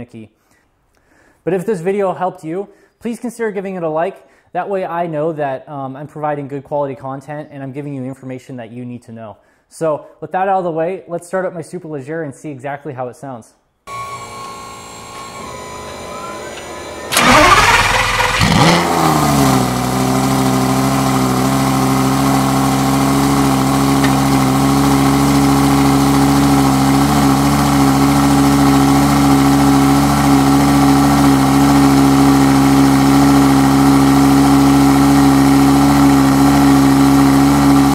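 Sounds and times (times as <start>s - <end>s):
sports car engine starting and idling: 13.9s - 37.9s.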